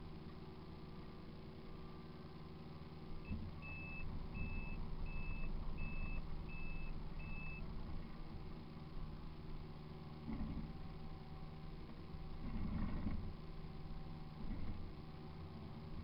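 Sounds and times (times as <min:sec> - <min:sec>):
diesel engine running: 0:00.0 - 0:16.0
travel alarm beeping: 0:03.6 - 0:07.6.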